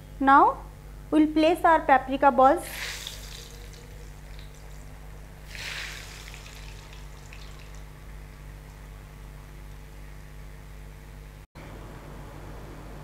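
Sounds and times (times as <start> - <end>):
food deep-frying in oil: 2.6 - 10.4.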